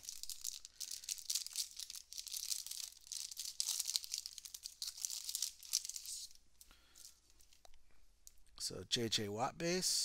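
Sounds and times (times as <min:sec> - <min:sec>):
cellophane wrapper crinkling: 0:00.0 - 0:07.7.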